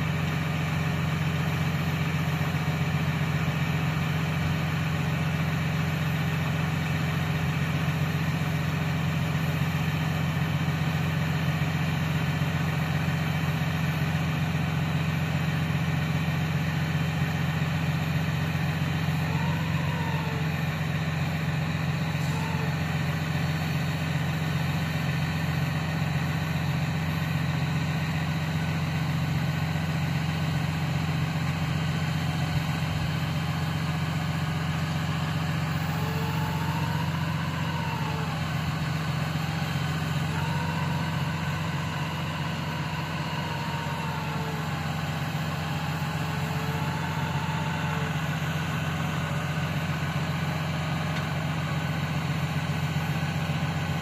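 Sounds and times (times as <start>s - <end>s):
truck engine idling: 0.0s - 54.0s
faint hydraulic whine: 17.2s - 54.0s.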